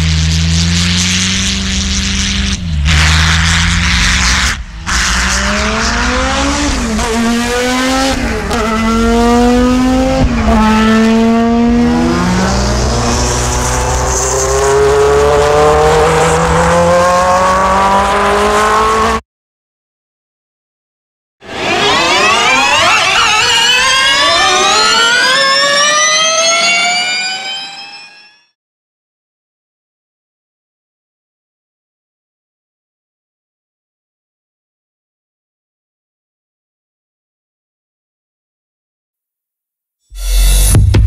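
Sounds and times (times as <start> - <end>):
electric race car whine: 0.0 - 19.2, 21.4 - 28.5.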